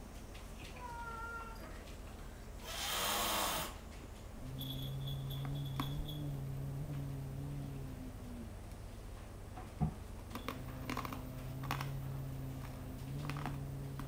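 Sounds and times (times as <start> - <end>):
cat hissing: 2.6 - 3.8
cat growling: 4.4 - 8.6, 10.4 - 14.0.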